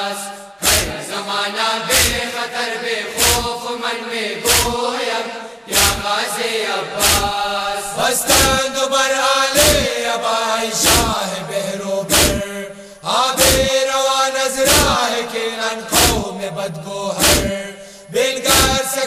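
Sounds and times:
men chanting in unison: 0.0 - 19.0
chest-beating thumps: 0.6 - 1.0, 1.9 - 2.3, 3.2 - 3.6, 4.4 - 4.8, 5.7 - 6.1, 7.0 - 7.4, 8.3 - 8.7, 9.6 - 9.9, 10.8 - 11.2, 12.1 - 12.5, 13.4 - 13.8, 14.7 - 15.0, 15.9 - 16.3, 17.2 - 17.6, 18.5 - 18.8.

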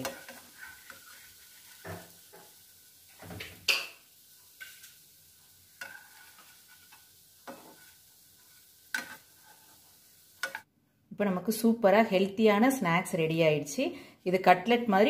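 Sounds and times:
oil sizzling: 0.0 - 10.7
plastic spatula scraping frying pan: 5.8 - 10.6.

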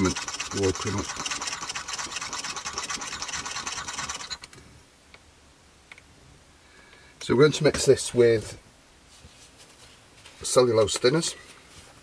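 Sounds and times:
stirrer scraping inside metal tin: 0.0 - 4.1.

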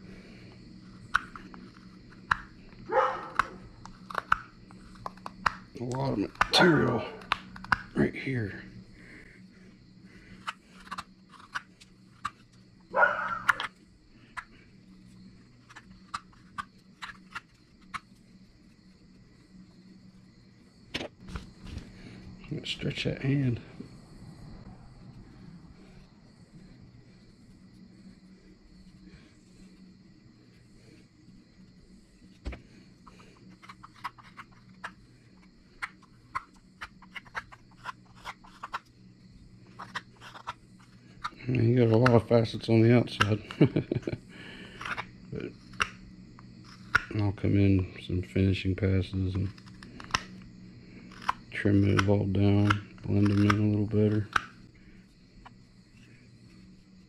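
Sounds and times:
faint low hum: 0.0 - 57.0
knife cutting wood clicks: 7.2 - 7.9, 45.7 - 46.0, 46.7 - 47.2, 49.4 - 50.3, 51.1 - 54.6
knife cutting wood: 10.2 - 14.6, 32.4 - 38.9, 39.6 - 42.2, 44.5 - 47.2, 49.1 - 54.6.

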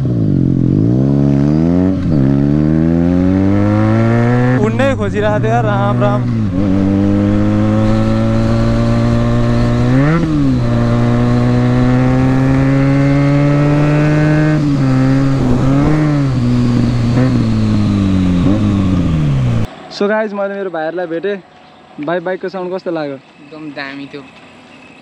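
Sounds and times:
motorcycle engine revving: 0.0 - 19.7.

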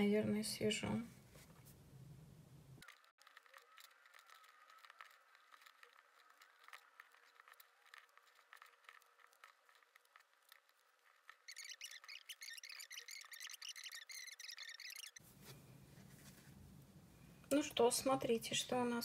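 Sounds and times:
crochet hook ticks and rustle: 2.8 - 15.2
faint high chirping: 11.2 - 15.9.

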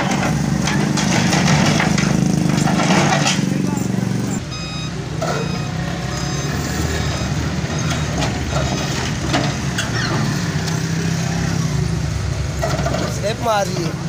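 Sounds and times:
diesel engines droning: 0.0 - 14.0
faint short beeps: 4.5 - 8.2.

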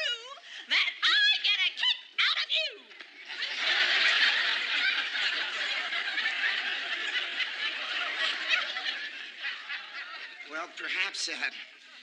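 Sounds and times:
studio audience laughing: 3.2 - 12.0.

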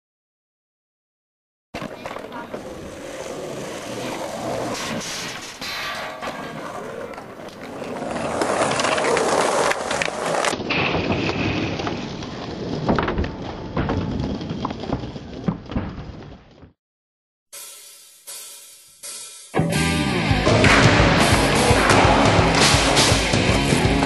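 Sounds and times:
skateboard clacking down: 1.8 - 4.7, 6.3 - 11.9, 20.6 - 24.0
skateboard wheels rolling: 1.8 - 5.6, 6.3 - 16.6, 21.2 - 24.0.

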